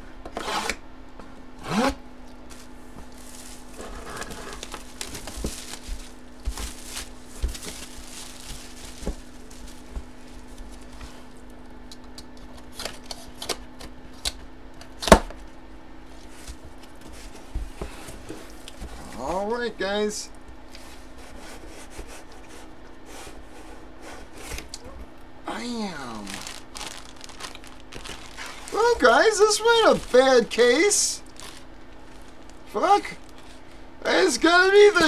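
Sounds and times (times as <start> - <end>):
steady hum: 0.0 - 35.0
cardboard rustling: 2.5 - 11.3, 26.2 - 30.6, 31.2 - 33.6.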